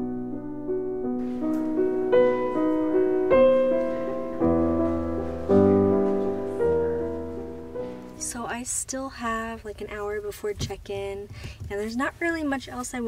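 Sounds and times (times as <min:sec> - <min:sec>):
slow piano music: 0:00.0 - 0:08.5.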